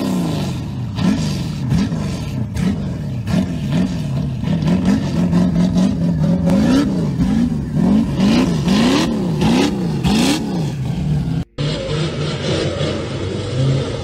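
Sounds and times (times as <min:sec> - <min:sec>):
engine revving: 0:00.0 - 0:14.0.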